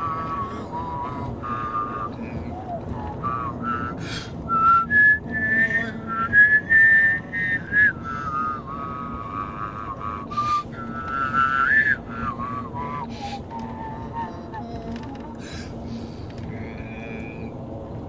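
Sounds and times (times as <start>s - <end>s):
person whistling a tune: 0.0s - 9.0s, 9.8s - 14.5s
road and engine hum: 0.0s - 18.0s.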